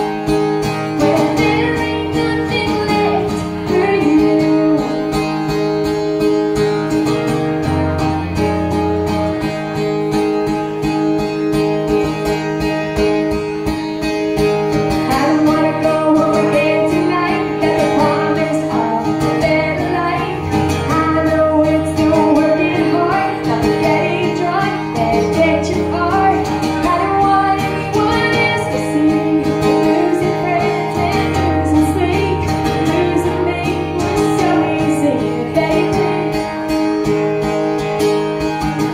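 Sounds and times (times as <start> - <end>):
acoustic guitar: 0.0 - 38.9
woman singing: 0.9 - 5.4, 15.0 - 36.7.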